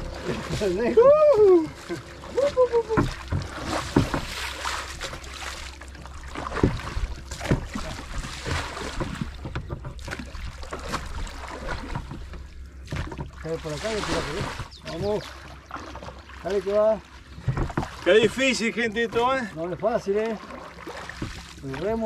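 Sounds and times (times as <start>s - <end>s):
oars splashing in water: 0.0s - 22.0s
knocks: 17.4s - 17.9s.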